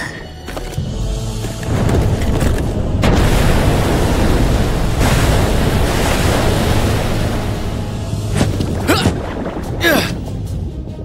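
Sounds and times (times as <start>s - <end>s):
deep rumble: 1.6s - 11.0s
crash of falling ice and water: 1.7s - 10.0s.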